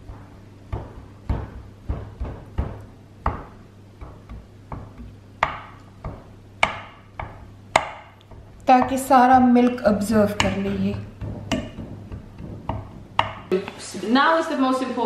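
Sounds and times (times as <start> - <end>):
fork tapping baking dish: 0.0 - 13.5.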